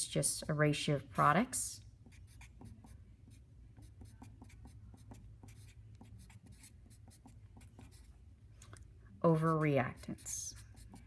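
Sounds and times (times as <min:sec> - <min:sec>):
marker scratching on paper: 0:02.0 - 0:08.1, 0:09.3 - 0:11.0.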